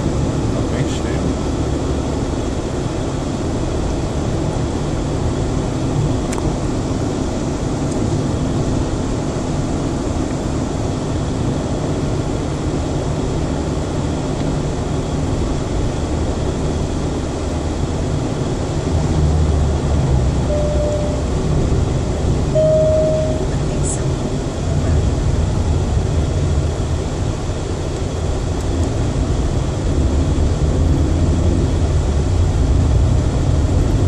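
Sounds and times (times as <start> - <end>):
car engine and road noise: 0.0 - 34.0
short faint tone: 20.5 - 21.4, 22.5 - 24.0.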